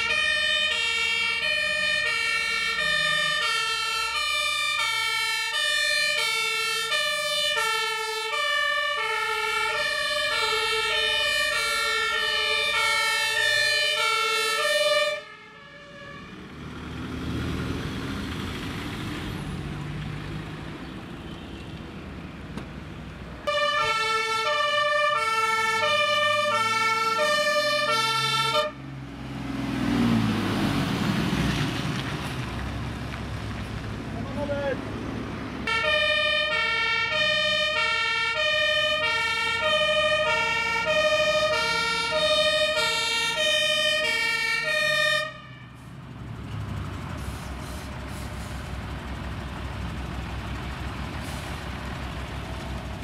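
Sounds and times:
two-tone fire engine sirens: 0.0 - 17.1, 23.4 - 31.3, 35.6 - 53.0
diesel truck pulling away: 0.0 - 53.0
passing vehicles: 0.0 - 53.0.

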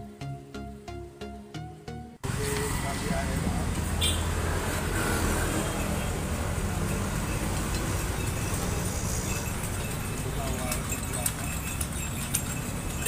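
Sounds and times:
hiss of passing vehicles: 2.2 - 11.0.

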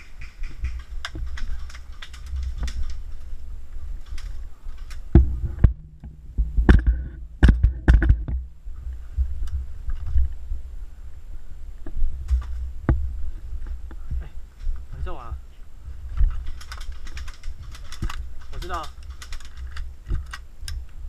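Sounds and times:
sharp clicks and knocks: 0.0 - 3.0, 4.0 - 8.5, 16.2 - 20.8.

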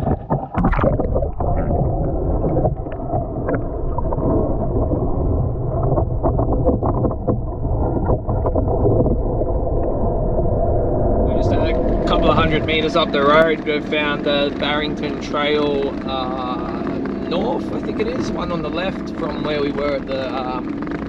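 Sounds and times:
underwater clicks and knocks: 0.0 - 5.1, 5.8 - 9.9
muffled underwater water rushing: 0.0 - 21.0.

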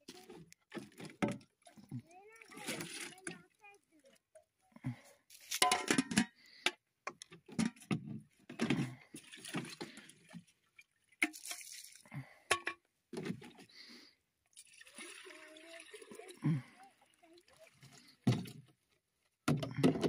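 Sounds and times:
water splashing and dripping: 0.0 - 4.6, 9.0 - 12.2, 14.4 - 18.7.

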